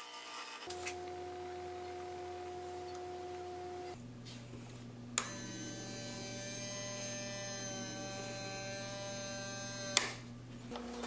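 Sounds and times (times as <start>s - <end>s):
geared motor whining: 0.6s - 11.0s
switch click: 9.9s - 10.2s.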